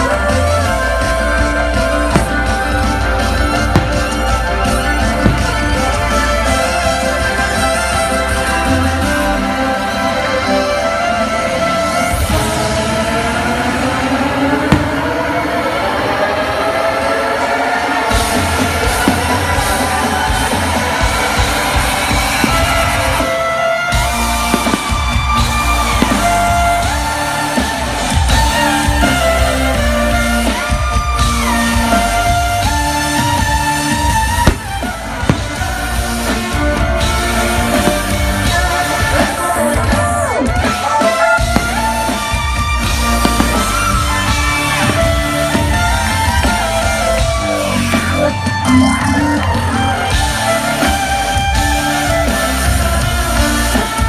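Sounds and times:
heavy bass beat: 0:00.0 - 0:07.2, 0:14.6 - 0:15.5, 0:31.2 - 0:40.4, 0:41.4 - 0:48.3
heavy bass and drums: 0:00.0 - 0:10.8, 0:11.5 - 0:17.0, 0:18.0 - 0:54.0
electric violin melody: 0:00.0 - 0:54.0.

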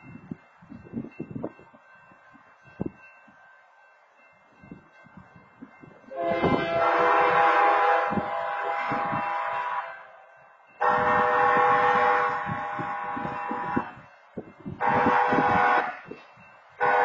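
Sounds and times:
train horn blasts: 0:06.1 - 0:10.2, 0:10.8 - 0:14.0, 0:14.8 - 0:16.2, 0:16.8 - 0:17.0.

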